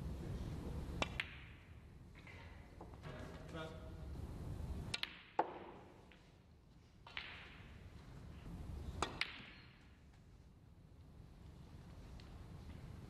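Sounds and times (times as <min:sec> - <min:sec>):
snooker balls clicking: 0:01.0 - 0:01.6, 0:04.9 - 0:06.4, 0:09.0 - 0:10.2.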